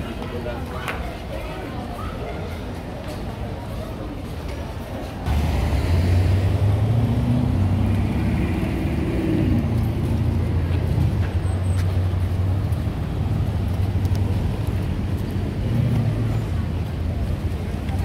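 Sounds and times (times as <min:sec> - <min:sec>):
faint street noise: 0:00.0 - 0:18.0
vehicle engine humming: 0:05.3 - 0:18.0.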